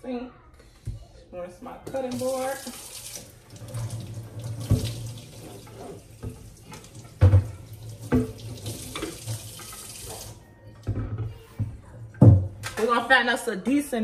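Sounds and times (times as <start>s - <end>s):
kitchen faucet running: 1.9s - 10.4s.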